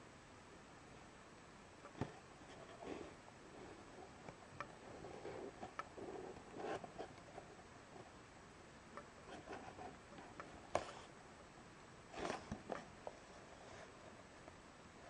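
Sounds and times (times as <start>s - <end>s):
cardboard rustling and scraping: 4.9s - 7.4s, 9.2s - 11.1s, 12.1s - 14.2s.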